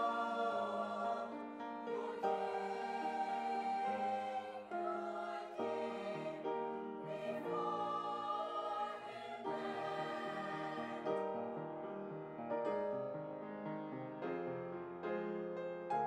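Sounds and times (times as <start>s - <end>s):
choir singing held chords: 0.0s - 12.0s.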